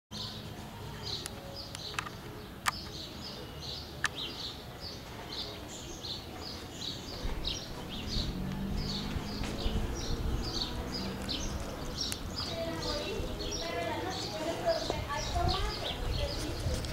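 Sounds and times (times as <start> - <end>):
sharp clicks: 1.2 - 3.0
low rumble: 7.2 - 12.5.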